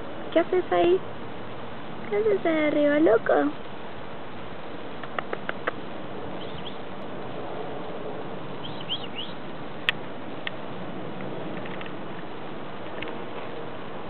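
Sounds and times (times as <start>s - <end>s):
steady background hiss: 0.0s - 14.0s
small birds chirping: 4.9s - 7.1s, 8.4s - 9.5s
sharp click: 5.0s - 5.8s.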